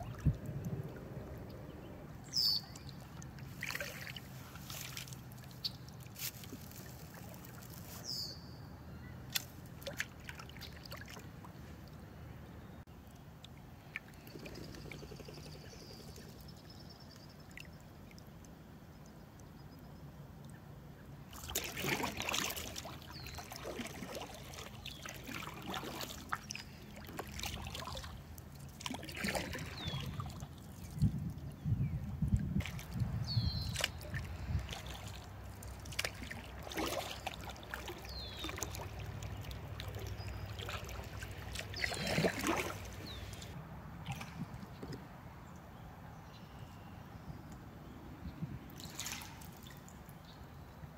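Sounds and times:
water trickling off paddle: 0:00.0 - 0:08.2, 0:21.3 - 0:31.4, 0:32.4 - 0:44.6, 0:48.8 - 0:50.1
paddle splashing in water: 0:02.4 - 0:07.9, 0:09.3 - 0:11.3, 0:21.3 - 0:31.1, 0:32.5 - 0:44.6, 0:48.8 - 0:50.0.

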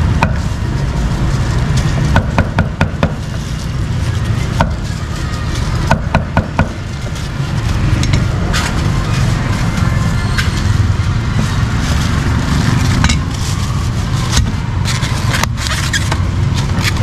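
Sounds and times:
cleaver chopping meat on wood: 0:02.1 - 0:03.2.

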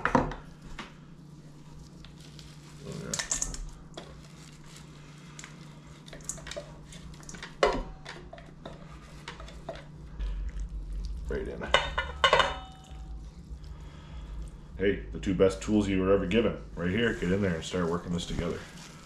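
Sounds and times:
steady low hum: 0:00.0 - 0:19.0
utensil clattering: 0:11.6 - 0:12.9.

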